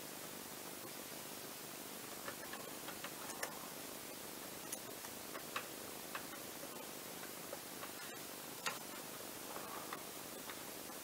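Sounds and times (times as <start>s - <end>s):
steady hiss: 0.0s - 11.0s
screwdriver ticking against screws: 2.1s - 3.6s, 4.6s - 9.1s.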